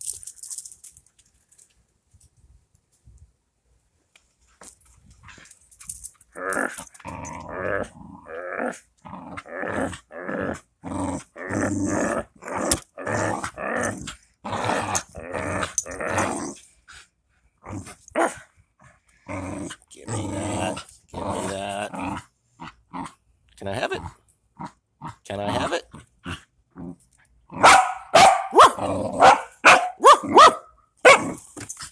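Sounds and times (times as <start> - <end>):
dog growling in play: 6.3 - 17.0, 17.6 - 23.2, 23.8 - 27.7, 28.6 - 29.4.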